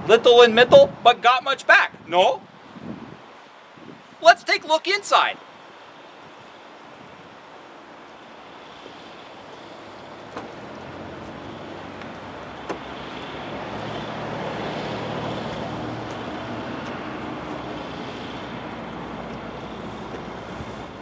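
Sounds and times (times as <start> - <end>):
vehicle engine running: 5.7 - 21.0.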